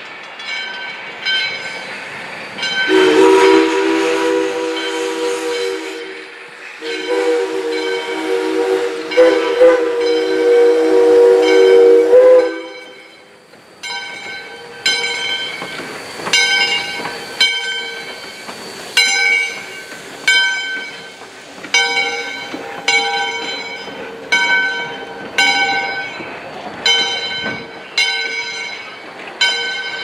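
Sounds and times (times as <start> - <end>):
locomotive bell ringing: 0.0 - 1.9, 2.5 - 6.2, 6.8 - 30.0
train rolling past: 0.0 - 30.0
steam locomotive whistle chord: 2.6 - 15.5.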